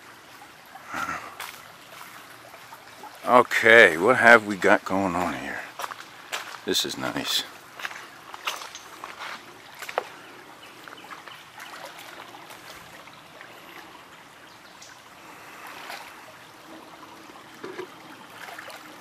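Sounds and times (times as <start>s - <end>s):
creek trickling over stones: 0.0s - 19.0s.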